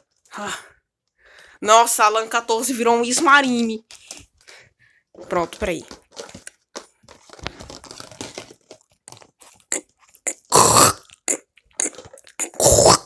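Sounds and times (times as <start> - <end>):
plastic bag crinkling: 3.4 - 4.6, 5.2 - 12.5
cardboard boxes rustling: 5.2 - 9.6.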